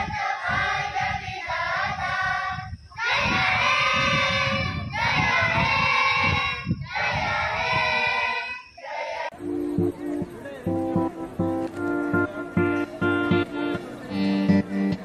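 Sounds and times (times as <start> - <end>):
group of voices singing: 0.0 - 9.6.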